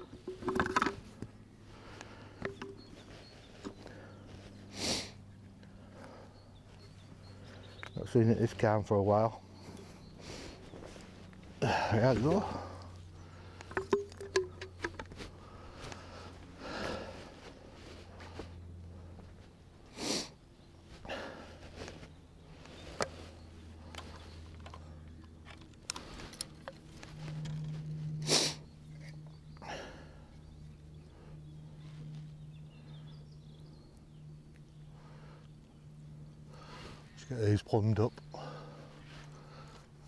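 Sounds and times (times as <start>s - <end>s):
fishing tackle clicking and rustling: 0.0s - 1.3s, 2.4s - 3.9s, 13.6s - 15.3s, 22.9s - 28.0s
low steady hum: 0.0s - 40.0s.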